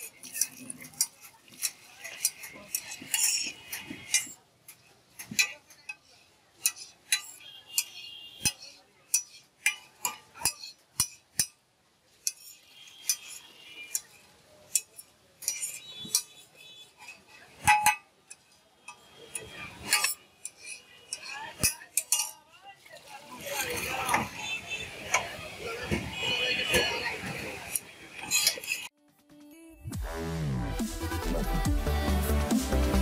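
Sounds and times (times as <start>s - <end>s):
metal spatulas tapping on griddle: 0.0s - 11.6s, 12.2s - 23.1s.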